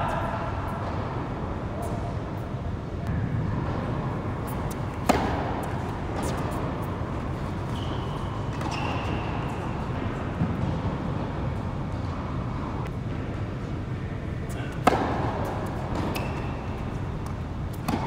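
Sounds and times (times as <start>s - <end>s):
tennis ball hit by racket: 4.4s - 6.7s, 14.7s - 16.4s, 17.2s - 18.0s.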